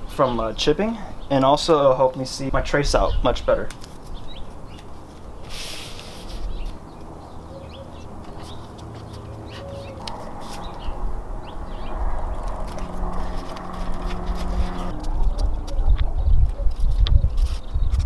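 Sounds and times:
tape squeaks and ticks: 6.2s - 10.9s, 12.4s - 18.0s
masking tape ripping: 12.0s - 15.8s.

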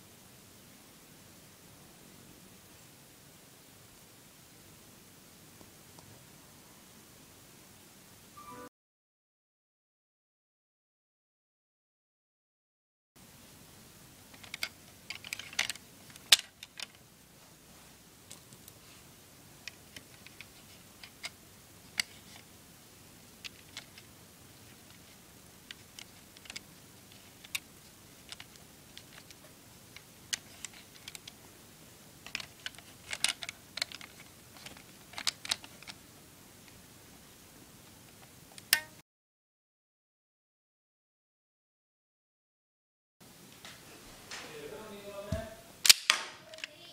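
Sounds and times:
plastic toy bricks clicking: 14.4s - 17.0s, 25.7s - 26.6s, 28.2s - 29.4s, 30.0s - 31.4s, 32.2s - 36.0s.

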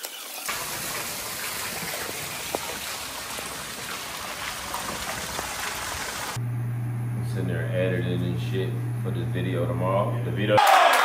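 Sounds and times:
water dripping: 0.0s - 6.4s
water washing on wet pavement: 0.0s - 6.4s.

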